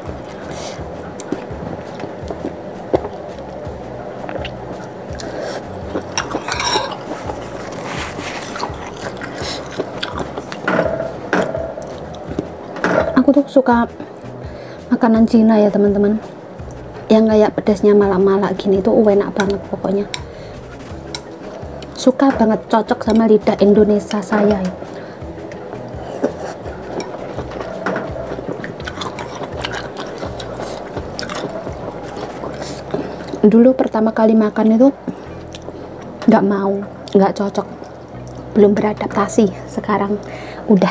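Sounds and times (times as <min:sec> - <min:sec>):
chewing and wet mouth noises: 0:00.0 - 0:13.2, 0:23.0 - 0:34.0, 0:35.0 - 0:39.2
metal spoon against ceramic bowl: 0:06.2 - 0:07.1.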